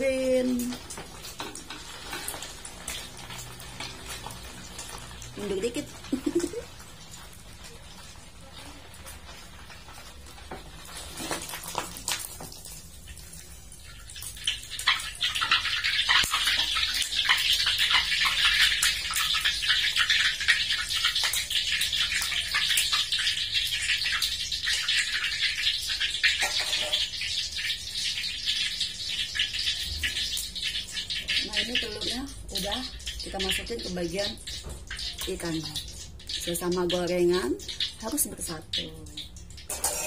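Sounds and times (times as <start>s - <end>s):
omelette sizzling in hot oil: 0.0s - 40.0s.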